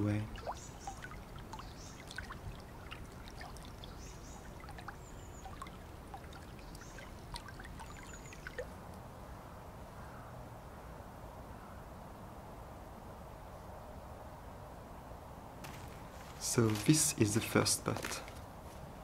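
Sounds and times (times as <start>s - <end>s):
stream trickling and gurgling: 0.0s - 9.2s.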